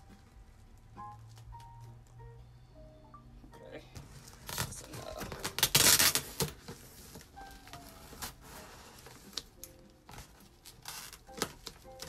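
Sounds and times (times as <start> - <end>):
tape and cardboard scraping: 4.0 - 12.0
scissors ripping packing tape: 4.4 - 6.6, 7.7 - 12.0.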